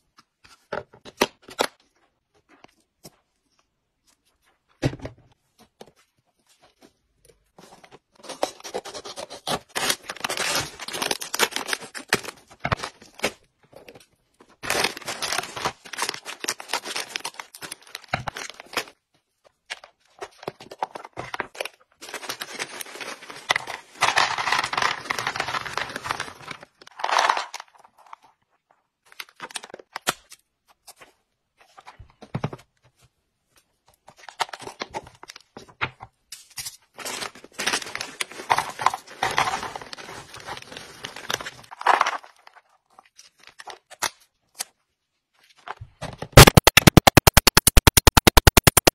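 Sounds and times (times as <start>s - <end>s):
packaging tearing and crinkling: 8.2s - 13.4s, 14.6s - 18.9s, 46.4s - 48.9s.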